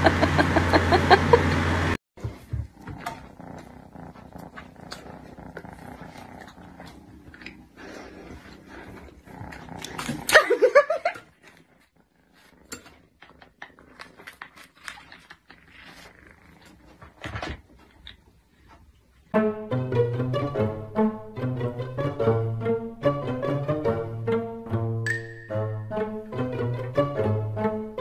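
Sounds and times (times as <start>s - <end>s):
cat low rumble: 2.2s - 10.3s, 11.3s - 18.4s.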